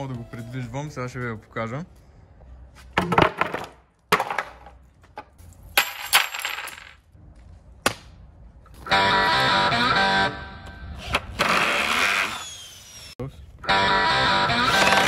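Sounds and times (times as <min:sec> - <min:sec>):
cordless drill driving screws: 0:11.0 - 0:13.2, 0:14.6 - 0:15.0.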